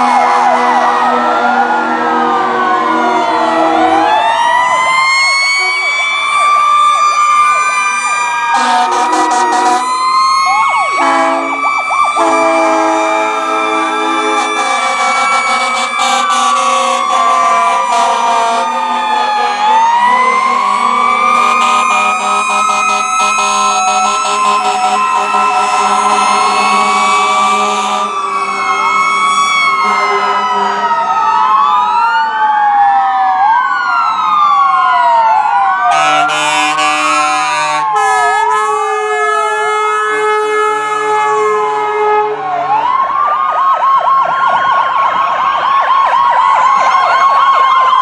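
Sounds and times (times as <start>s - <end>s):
fire truck sirens wailing: 0.0s - 48.0s
siren fast yelps: 0.0s - 48.0s
horn blast: 8.6s - 9.9s, 11.0s - 11.6s, 12.2s - 19.7s, 20.4s - 31.0s, 35.9s - 42.4s.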